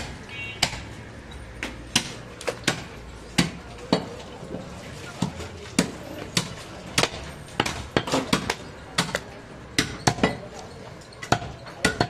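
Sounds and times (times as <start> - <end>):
knife chopping meat on wood: 1.6 - 4.2, 5.2 - 10.4.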